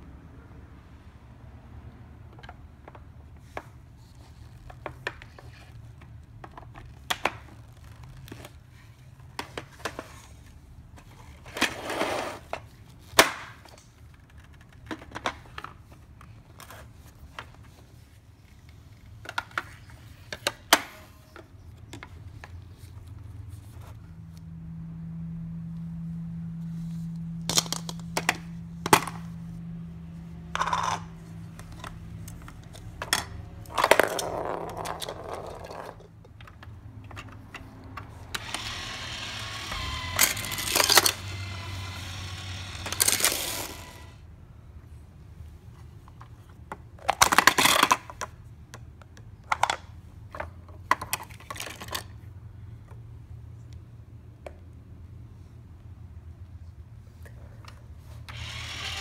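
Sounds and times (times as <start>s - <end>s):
plastic toys clicking and knocking: 2.3s - 8.6s, 12.5s - 17.6s, 19.0s - 22.6s, 27.4s - 29.3s, 30.4s - 44.2s, 46.1s - 52.3s.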